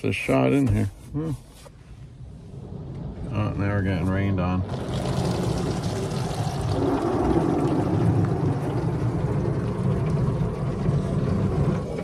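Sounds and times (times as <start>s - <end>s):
low rumble: 2.1s - 12.0s
water spray hissing on car: 4.7s - 12.0s.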